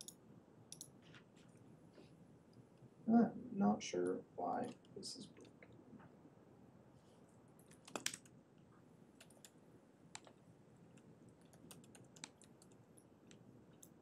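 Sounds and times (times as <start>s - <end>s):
keyboard typing: 7.6s - 8.3s, 9.2s - 9.6s, 10.2s - 14.0s.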